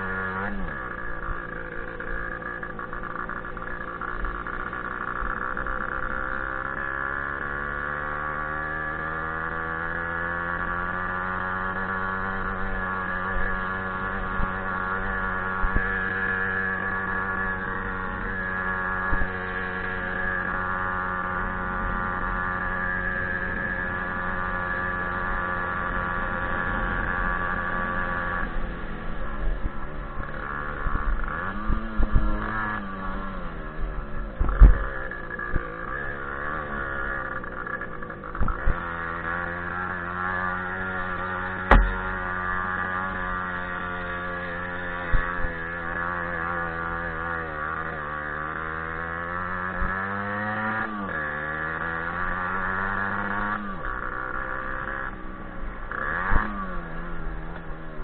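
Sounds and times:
two-stroke moped engine revving: 0.0 - 58.0
engine knocks: 41.6 - 42.3.

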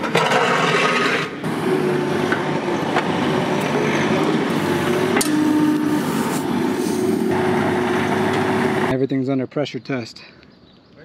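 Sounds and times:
excavator engine and hydraulics: 0.0 - 8.9.

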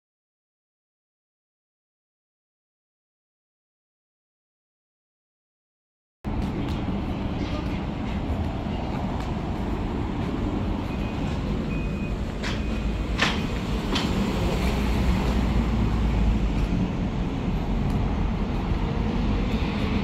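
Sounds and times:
sharp knocks: 12.4 - 14.3.

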